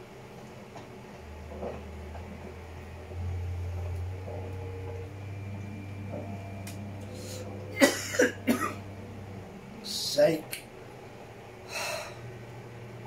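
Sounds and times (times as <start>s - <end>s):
low steady hum: 0.0s - 13.0s
man coughing: 7.8s - 8.8s.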